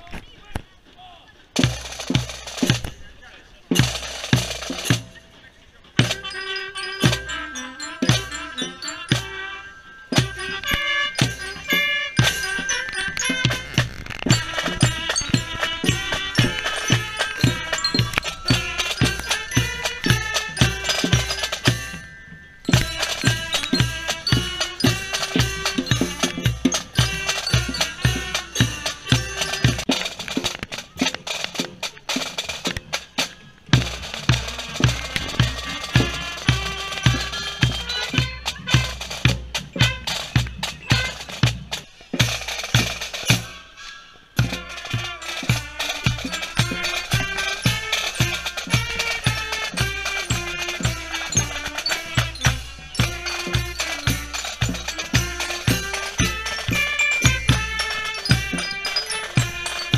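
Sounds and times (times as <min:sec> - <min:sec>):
drum and bugle band playing: 0:01.5 - 0:59.9
held melody notes: 0:01.8 - 0:59.9
bass drum beats: 0:10.2 - 0:22.1.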